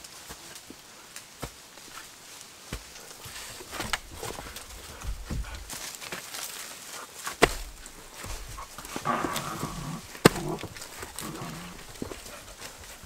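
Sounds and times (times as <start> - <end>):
stones knocking: 7.3 - 13.0.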